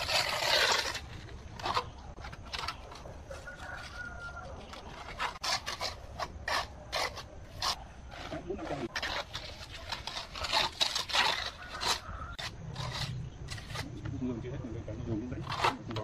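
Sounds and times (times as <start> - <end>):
trowel scraping wet mortar: 0.0 - 14.1, 15.3 - 16.0.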